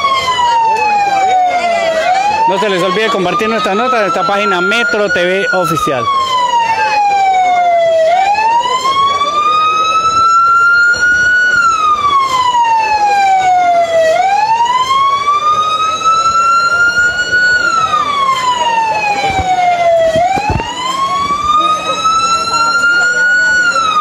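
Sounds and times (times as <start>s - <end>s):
fire truck siren wailing: 0.0s - 24.0s.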